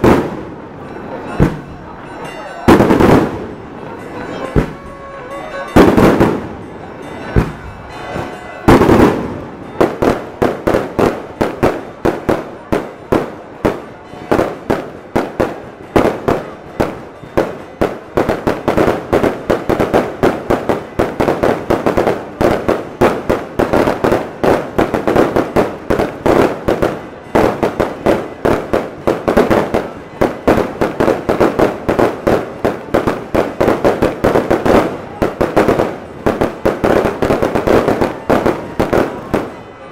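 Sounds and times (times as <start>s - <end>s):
firework bangs: 0.0s - 39.8s
rapid barrage of firework bursts: 8.7s - 39.6s.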